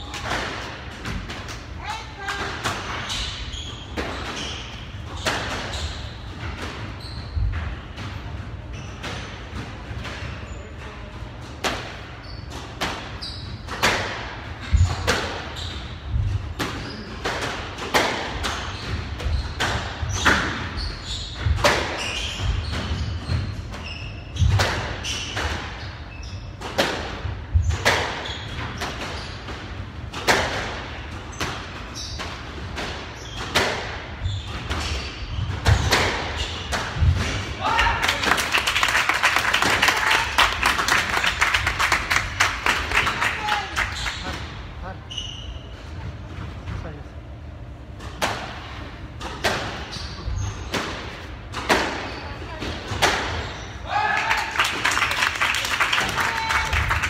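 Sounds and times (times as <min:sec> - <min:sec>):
squash ball hitting rackets and walls: 0:00.0 - 0:10.5, 0:11.2 - 0:38.0, 0:47.9 - 0:53.8.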